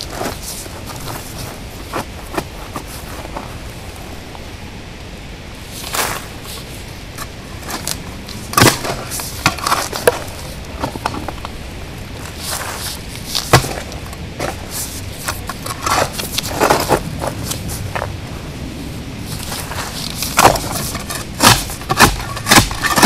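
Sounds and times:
hand shovel digging into soil: 5.8s - 11.3s, 12.2s - 18.0s, 19.3s - 23.0s.

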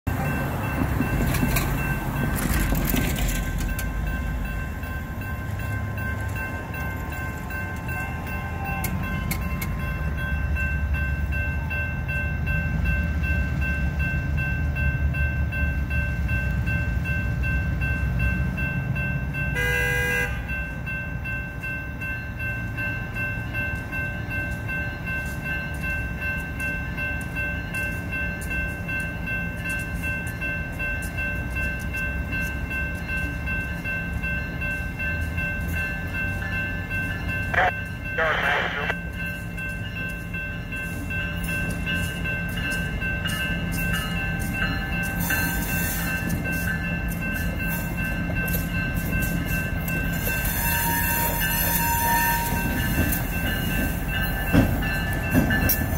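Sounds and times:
crossing warning bell ringing: 0.1s - 55.9s
locomotive rumble: 0.1s - 55.9s
locomotive horn: 19.6s - 20.5s, 37.5s - 39.0s, 50.5s - 52.8s.

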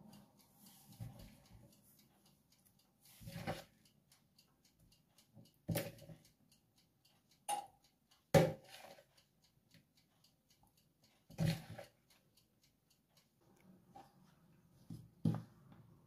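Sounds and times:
spoon scraping and tapping bowl: 8.4s - 9.1s.

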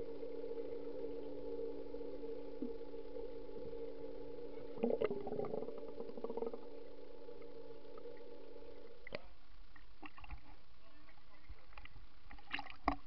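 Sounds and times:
underwater hum: 0.0s - 13.0s
bubbly crackling: 4.6s - 9.2s.

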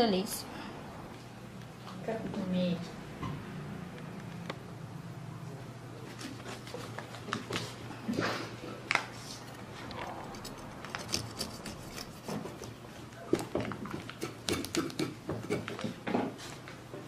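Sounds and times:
bread knife sawing through bread: 10.4s - 12.7s.

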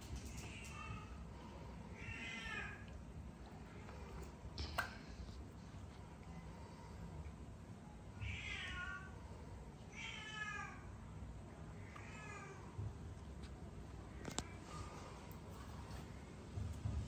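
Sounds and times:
cat meowing: 8.2s - 9.1s.

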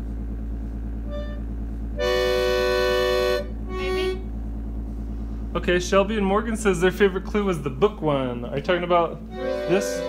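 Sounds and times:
steady low hum: 0.0s - 10.0s
electric organ notes: 1.0s - 4.4s, 8.9s - 10.0s.

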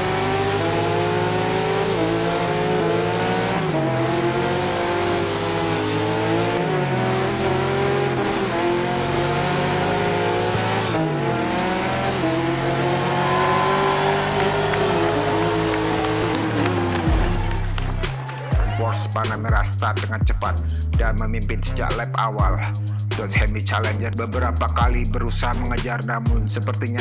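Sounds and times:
race car engine accelerating: 0.0s - 19.8s.

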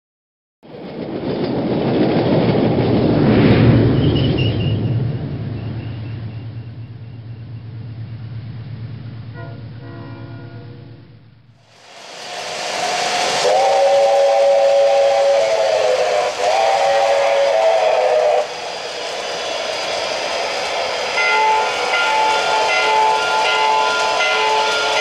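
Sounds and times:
pulsing whistle tone: 4.0s - 7.7s, 12.2s - 25.0s
model train steam whistle: 9.3s - 11.2s, 11.9s - 25.0s
hiss of steam: 11.6s - 25.0s.

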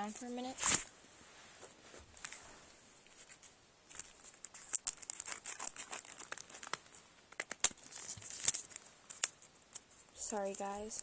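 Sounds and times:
wrapper crinkling and tearing: 3.0s - 11.0s.

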